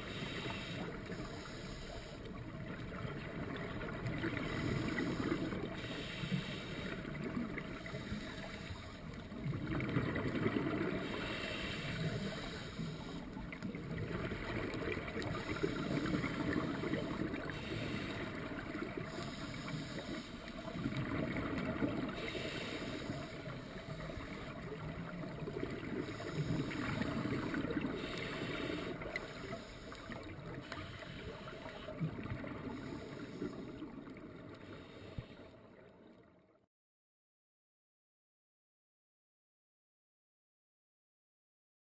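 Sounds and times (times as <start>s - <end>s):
regulator inhale hiss: 0.0s - 2.5s, 4.3s - 9.2s, 10.8s - 13.4s, 15.2s - 20.8s, 22.0s - 24.7s, 25.8s - 33.9s, 34.5s - 35.7s
exhale bubbling underwater: 9.1s - 35.0s.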